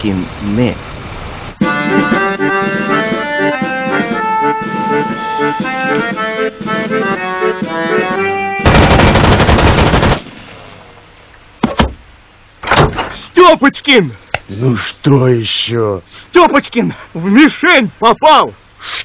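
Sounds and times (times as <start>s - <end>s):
instrumental music: 1.6s - 8.7s
automatic rifle fire: 8.6s - 10.5s.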